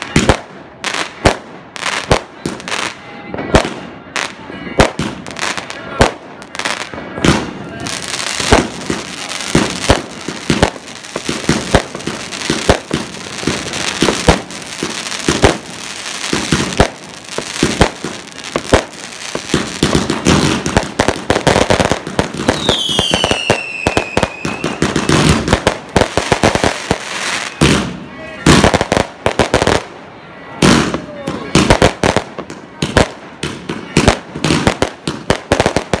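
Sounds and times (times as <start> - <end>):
fireworks bangs: 0.0 - 36.0
falling firework whistle: 22.4 - 25.4, 27.2 - 27.9.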